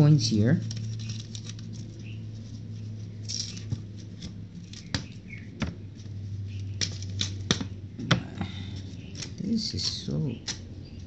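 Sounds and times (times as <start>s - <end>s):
steady low hum: 0.0s - 11.0s
paper rustling: 0.6s - 5.2s.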